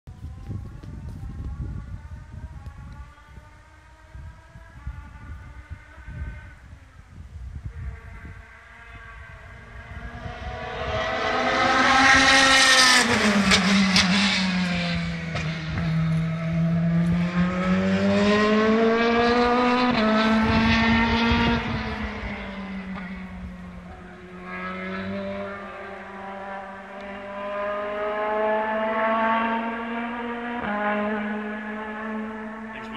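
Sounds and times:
race car engine passing: 7.8s - 32.9s.

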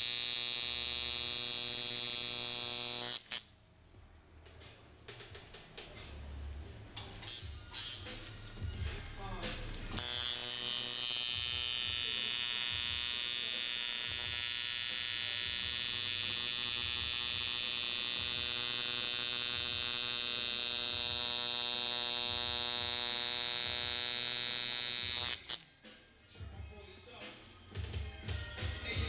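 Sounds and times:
tattoo machine buzzing: 0.0s - 3.5s, 7.2s - 8.8s, 9.9s - 25.7s.

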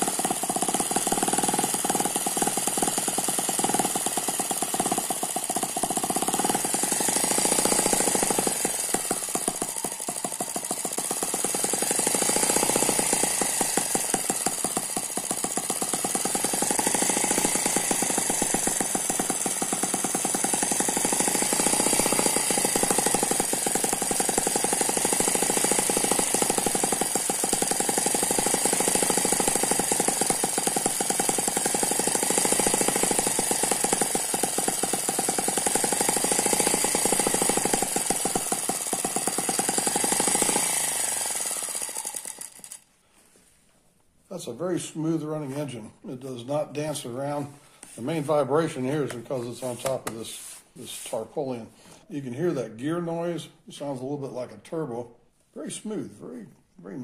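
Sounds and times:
small engine running steadily: 0.0s - 42.9s.

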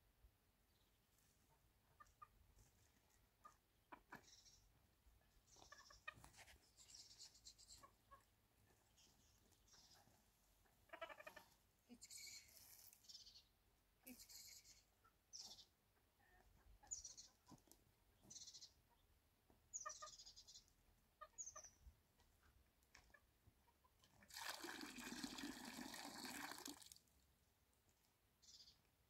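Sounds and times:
poultry chirping: 5.5s - 13.5s, 14.1s - 19.1s, 19.7s - 21.9s
water poured into vessel: 24.3s - 27.0s.

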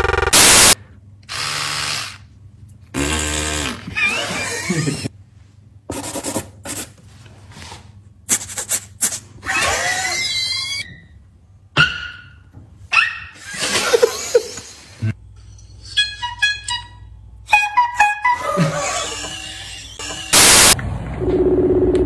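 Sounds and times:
men laughing: 4.4s - 5.1s, 13.4s - 15.2s, 18.4s - 19.2s
beatboxing: 8.3s - 9.3s.

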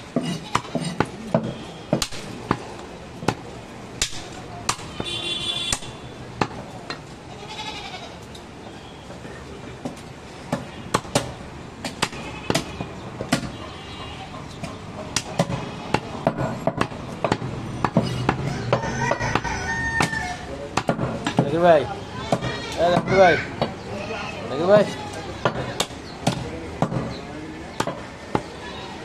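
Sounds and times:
goat bleating: 7.3s - 8.2s.

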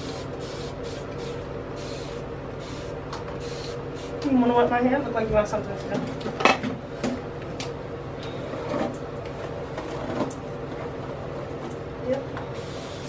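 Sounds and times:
spray bottle spritzes: 0.0s - 4.2s
steady low hum: 0.0s - 13.0s.

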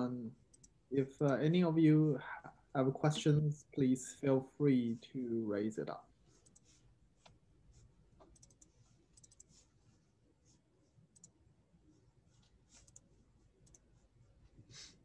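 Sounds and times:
computer mouse clicks: 0.5s - 0.8s, 6.4s - 7.4s, 8.2s - 9.6s, 11.1s - 11.4s, 12.7s - 13.9s.

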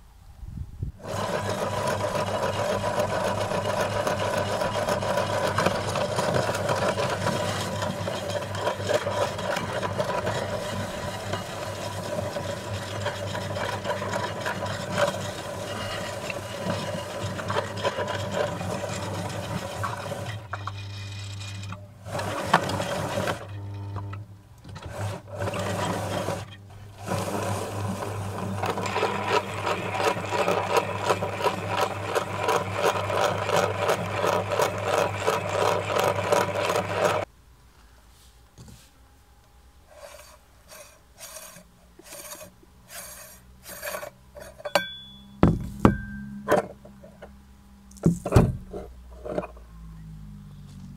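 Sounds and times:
meat grinder humming: 1.0s - 20.6s, 25.2s - 37.3s
cookies crunching in grinder: 1.1s - 20.5s, 27.1s - 37.3s.

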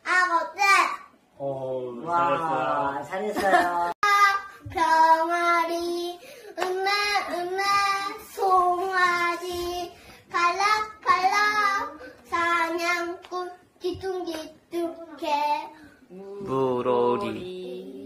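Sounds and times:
boy singing unaccompanied: 4.0s - 18.0s.

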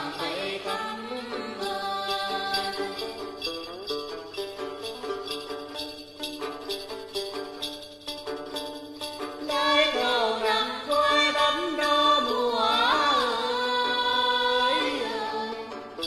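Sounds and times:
woman singing folk melody: 0.0s - 3.8s, 9.2s - 16.0s
plucked lute: 0.0s - 16.0s.

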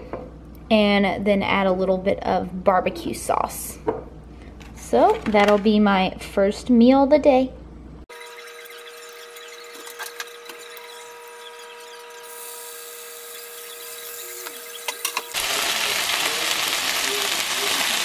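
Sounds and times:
chicken sizzling in frying pan: 15.0s - 18.0s.

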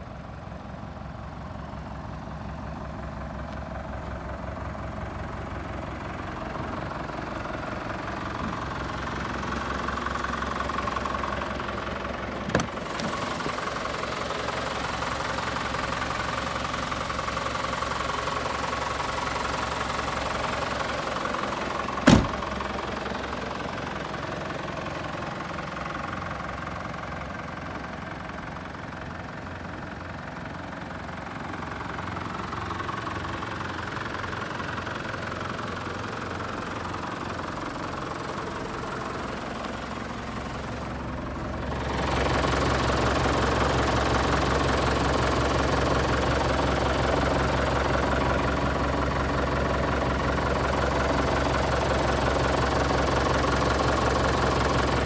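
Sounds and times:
diesel engine idling: 0.0s - 55.0s
sharp knock: 22.1s - 22.4s.

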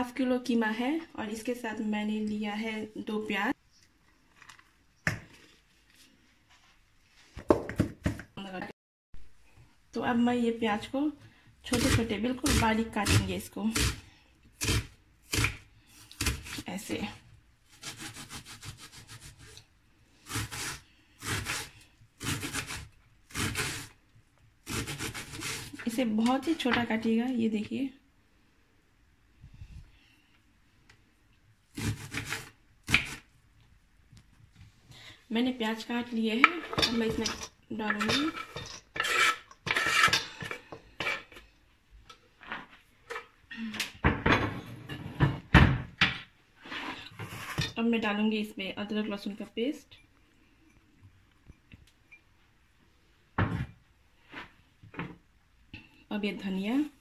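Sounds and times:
knife scraping wooden cutting board: 38.0s - 41.4s, 46.6s - 47.8s.

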